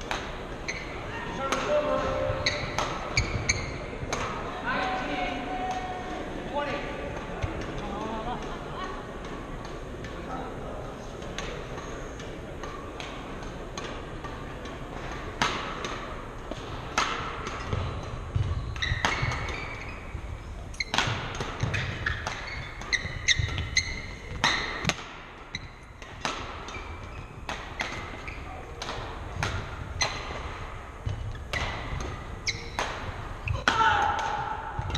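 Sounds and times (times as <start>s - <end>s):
racket hitting shuttlecock: 0.0s - 4.5s, 11.2s - 34.9s
shoes squeaking: 0.0s - 4.6s, 16.5s - 33.7s.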